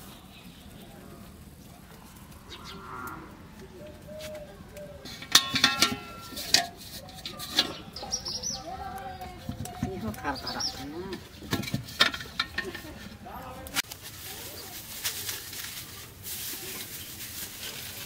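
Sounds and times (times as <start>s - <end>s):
metal cooking pot clanking: 5.0s - 8.4s, 9.3s - 13.2s.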